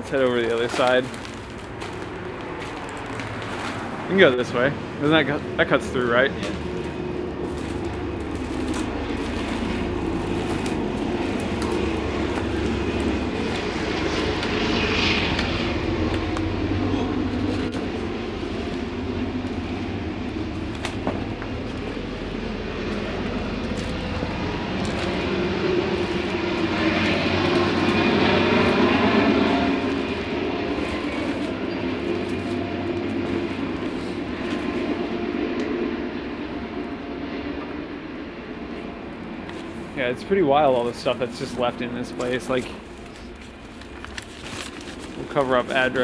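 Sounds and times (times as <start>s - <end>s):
footsteps crunching on debris: 0.0s - 4.2s, 6.4s - 35.0s, 42.1s - 46.0s
low rumble: 1.1s - 40.2s.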